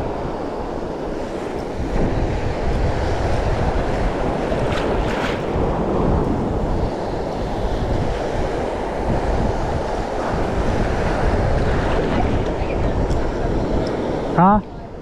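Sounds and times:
choppy sea waves: 0.0s - 15.0s
wind buffeting microphone: 0.0s - 15.0s.

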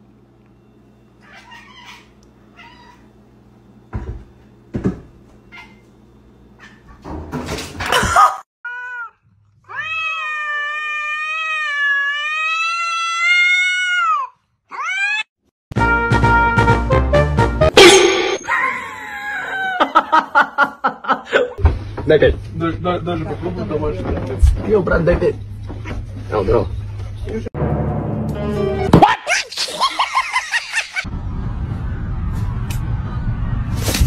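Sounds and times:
cat yowling: 1.2s - 3.1s, 8.7s - 15.3s.

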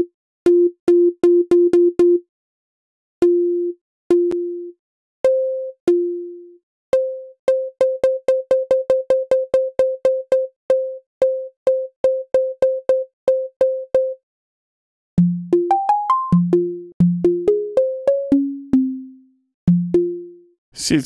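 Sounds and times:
synth pluck notes: 15.2s - 19.2s.

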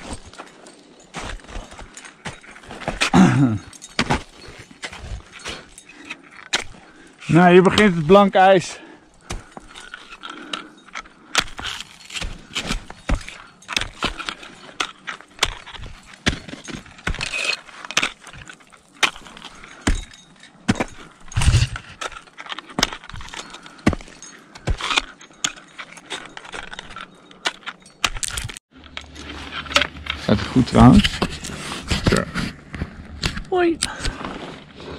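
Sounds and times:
climbing hardware clinking: 0.0s - 32.2s
ice axes striking ice: 1.1s - 8.3s, 9.2s - 28.6s.

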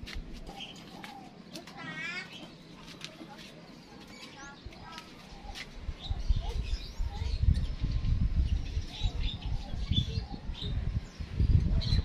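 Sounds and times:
small birds chirping: 0.0s - 12.0s
low rumble on microphone: 5.8s - 12.0s.

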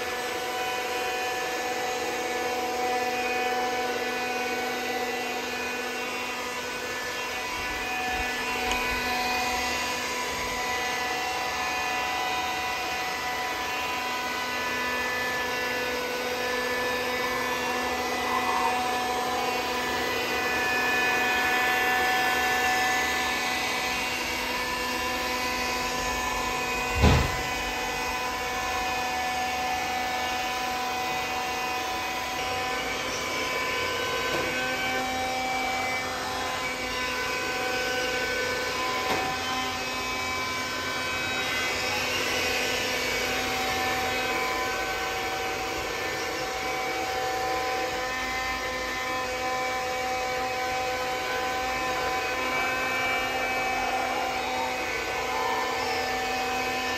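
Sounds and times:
robot floor scrubber motor whine: 0.0s - 56.9s
sharp thump: 27.0s - 27.4s.

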